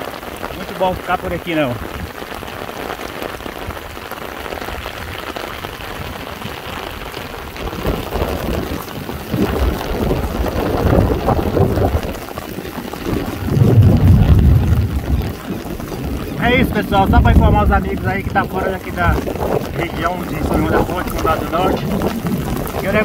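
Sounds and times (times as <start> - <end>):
heavy rain falling: 0.0 - 23.0
deep rumbling: 12.9 - 23.0.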